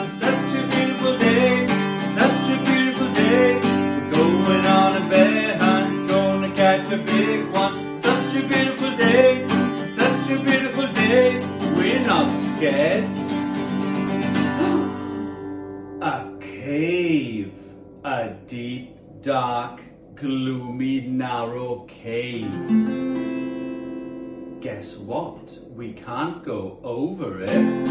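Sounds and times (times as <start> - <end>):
man singing: 0.0 - 13.1, 16.0 - 22.5, 27.4 - 27.9
acoustic guitar strumming: 0.0 - 26.6, 27.2 - 27.9.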